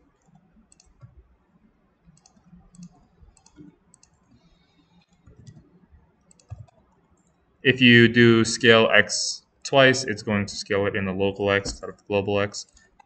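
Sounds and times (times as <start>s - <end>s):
computer keyboard and mouse clicks: 0.2s - 1.2s, 2.0s - 7.3s.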